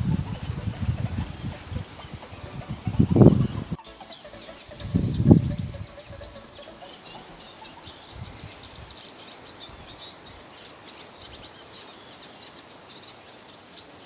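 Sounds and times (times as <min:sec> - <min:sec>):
faint low bumps: 0:00.0 - 0:08.9
small songbirds chirping: 0:00.0 - 0:14.0
steady background hiss: 0:00.0 - 0:14.0.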